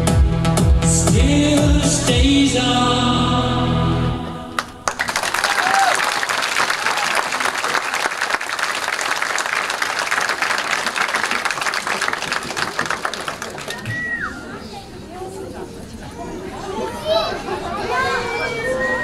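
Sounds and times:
stage music: 0.0s - 5.8s
audience applause: 4.6s - 14.4s.

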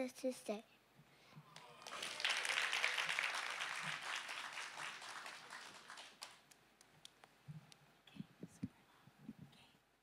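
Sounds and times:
congregation applauding: 1.6s - 6.6s.

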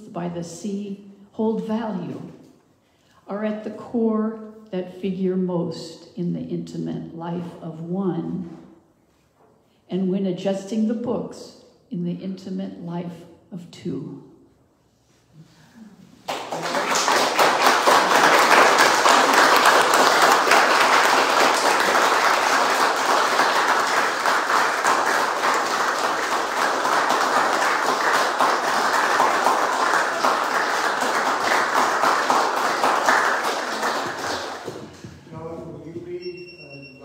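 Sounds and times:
audience applauding: 16.2s - 35.2s.

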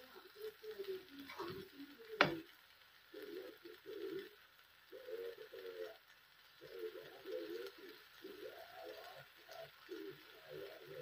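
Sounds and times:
dove cooing: 0.0s - 11.0s
plastic spatula knocking on pan: 2.2s - 2.4s.

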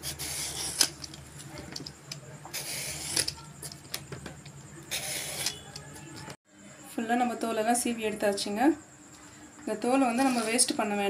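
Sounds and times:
peeler scraping gourd skin: 0.0s - 1.2s, 2.1s - 4.0s, 4.8s - 5.9s.

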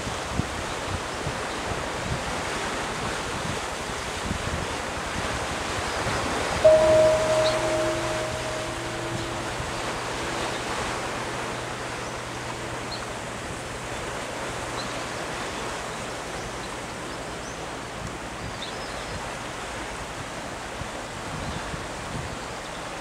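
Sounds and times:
sea surf: 0.0s - 23.0s
faint high chirps: 6.6s - 13.2s.

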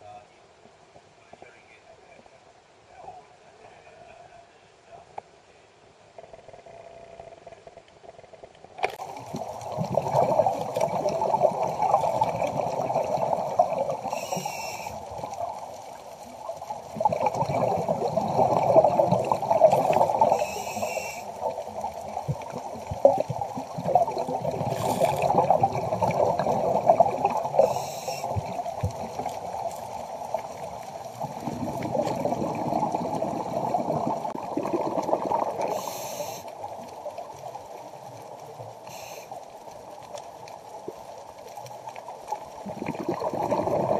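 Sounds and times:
gurgling exhaled bubbles: 8.8s - 39.0s, 40.6s - 43.9s
regulator hissing inhalations: 14.1s - 15.0s, 27.6s - 28.4s, 35.7s - 36.6s, 38.9s - 39.4s.

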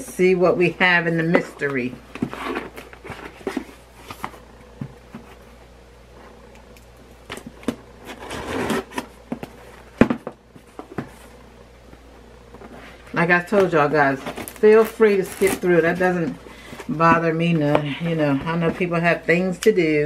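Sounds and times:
cardboard box scraping: 2.2s - 4.2s, 8.0s - 9.0s.

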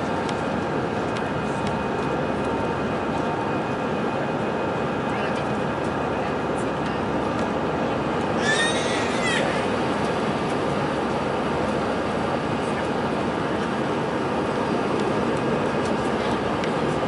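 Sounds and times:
jet engines and airflow rush: 0.0s - 17.0s.

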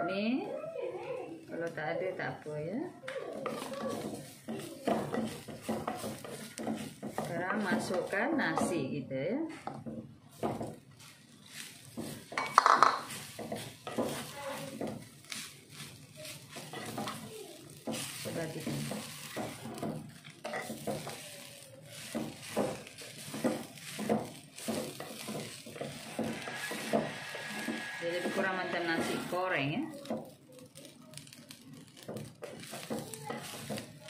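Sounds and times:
light frying sizzle: 0.0s - 34.0s
wooden spatula scraping pot: 3.2s - 34.0s.

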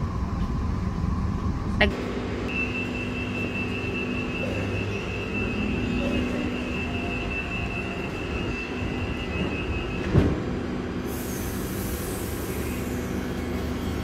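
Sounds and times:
railcar equipment humming: 0.0s - 14.0s
high steady tone: 2.5s - 10.2s
train doors shutting thump: 8.8s - 10.7s
air hiss: 11.0s - 13.2s.

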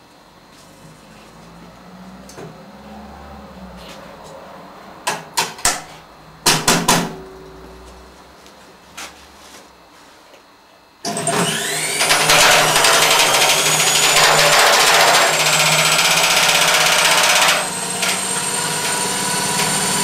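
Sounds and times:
knocks on metal drum: 6.5s - 7.3s
motor whine rising: 11.3s - 15.4s.

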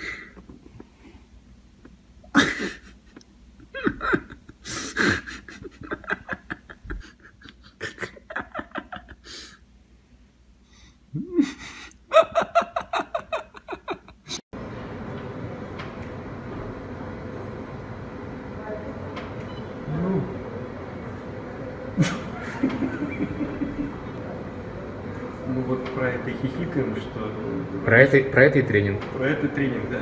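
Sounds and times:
person giggling: 2.2s - 9.6s, 11.1s - 14.4s, 22.0s - 24.1s.

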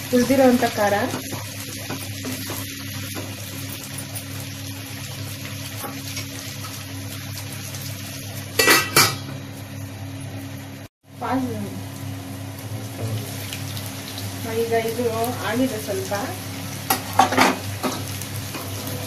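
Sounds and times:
vegetables sizzling in oil: 0.0s - 19.0s
metallic clatter against pan: 8.6s - 9.3s.

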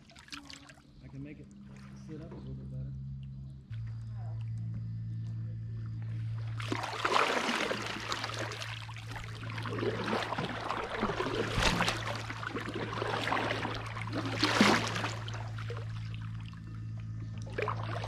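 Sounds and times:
paddle splashing water: 6.5s - 16.6s, 17.5s - 18.0s.

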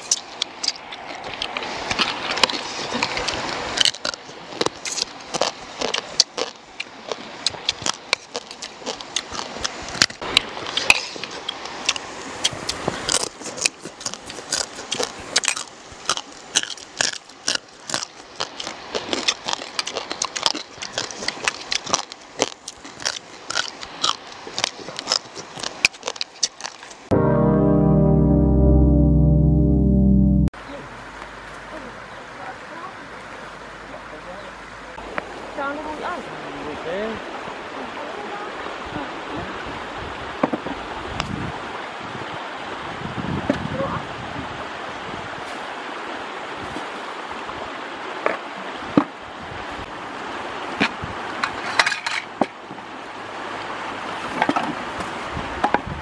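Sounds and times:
crunching crab shells: 3.8s - 10.2s, 12.7s - 27.1s.

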